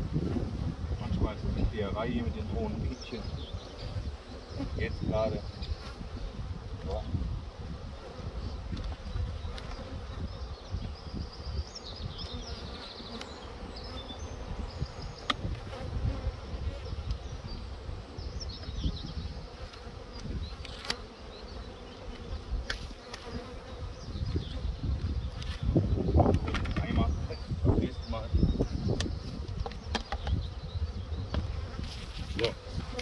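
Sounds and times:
bees humming: 0:00.1 - 0:26.2.

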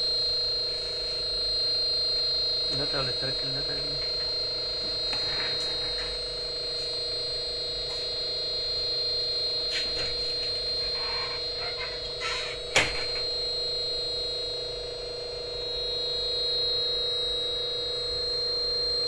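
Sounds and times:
electrical hum: 0:00.0 - 0:19.0
high thin whine: 0:02.7 - 0:08.2.

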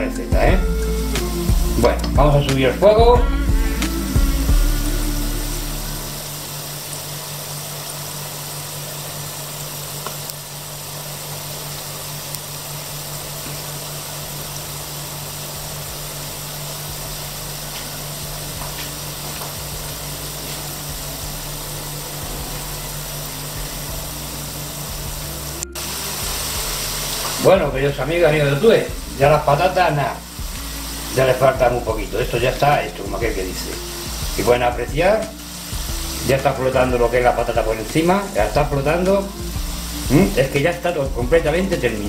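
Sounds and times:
low hum: 0:00.0 - 0:07.4, 0:14.2 - 0:32.2
oil sizzling while deep-frying: 0:00.0 - 0:42.0.

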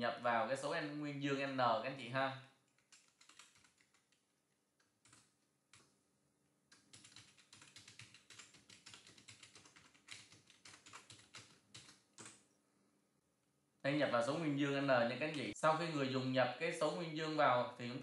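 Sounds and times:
typing on keyboard: 0:02.7 - 0:04.2, 0:04.8 - 0:05.9, 0:06.7 - 0:12.4.

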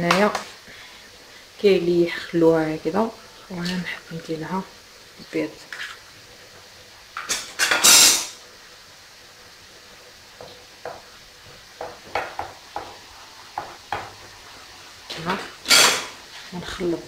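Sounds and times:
wooden spatula stirring in a pan: 0:09.4 - 0:17.0.

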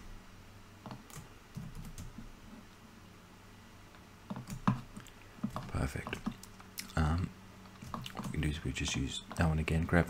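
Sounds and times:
computer keyboard tapping: 0:00.8 - 0:02.2, 0:04.3 - 0:06.7.

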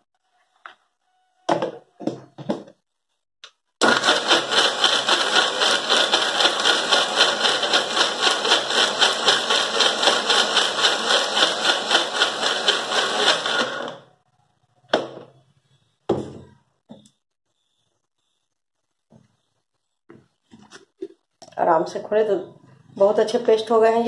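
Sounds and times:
mixer grinder running: 0:03.8 - 0:14.1.

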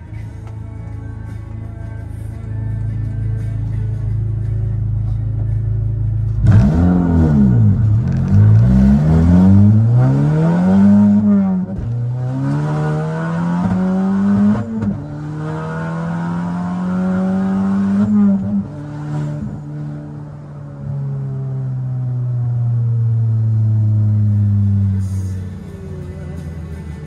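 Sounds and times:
car engine accelerating hard: 0:06.3 - 0:25.5.

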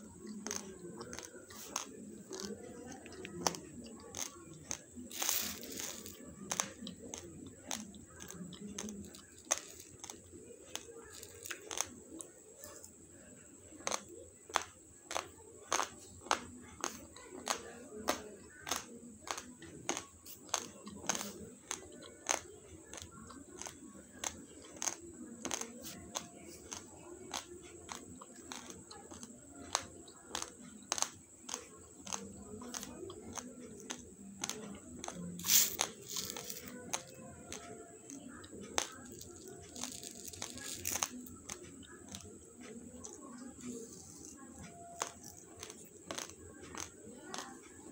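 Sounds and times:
person chewing crunchy rice: 0:00.0 - 0:47.9
spoon scooping rice in metal bowl: 0:00.4 - 0:07.3, 0:35.4 - 0:37.1.

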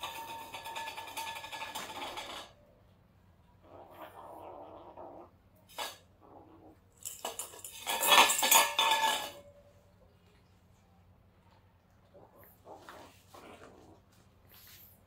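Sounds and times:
dry kibble rattling against metal: 0:00.0 - 0:02.6, 0:07.0 - 0:09.5
metal pet bowl clattering on floor: 0:00.0 - 0:02.6, 0:07.0 - 0:09.6.

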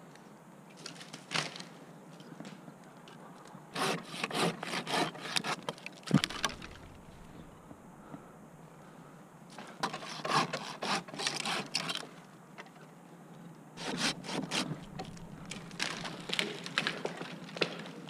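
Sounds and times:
hand saw cutting wood: 0:03.7 - 0:06.9, 0:09.8 - 0:12.0, 0:13.8 - 0:16.4.

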